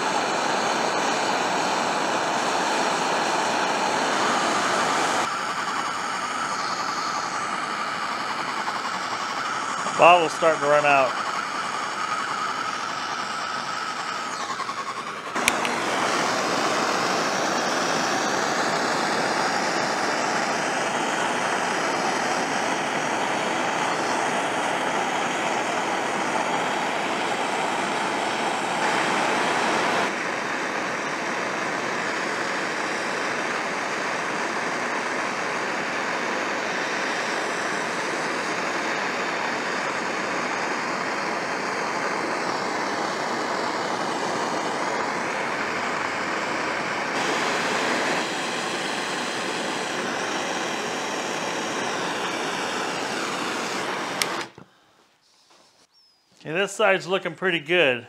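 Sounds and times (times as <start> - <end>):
gas torch hissing: 0.0 - 57.0
torch click: 0.9 - 23.0, 47.2 - 54.7.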